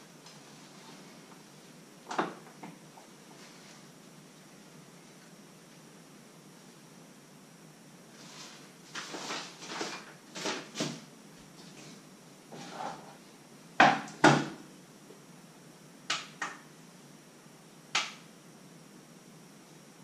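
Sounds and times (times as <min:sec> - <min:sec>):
utensils rustling and scraping: 0:08.1 - 0:11.0.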